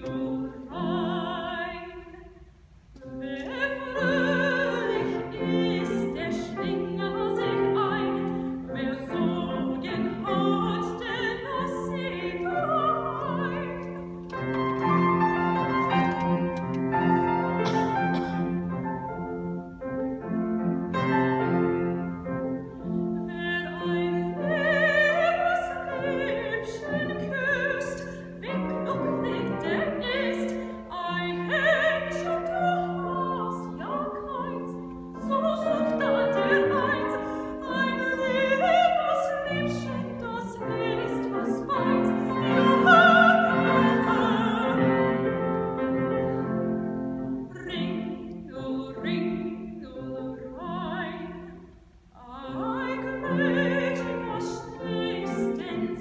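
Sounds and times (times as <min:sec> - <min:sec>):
woman singing operatically: 0:00.0 - 0:02.3, 0:03.1 - 0:14.5, 0:23.2 - 0:45.6, 0:47.5 - 0:51.6, 0:52.2 - 0:56.0
grand piano accompaniment: 0:00.0 - 0:56.0.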